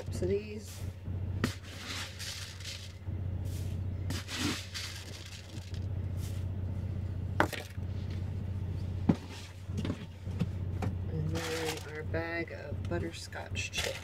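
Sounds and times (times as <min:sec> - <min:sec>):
steady low hum: 0:00.0 - 0:14.0
oats pouring and scooping: 0:01.4 - 0:06.5.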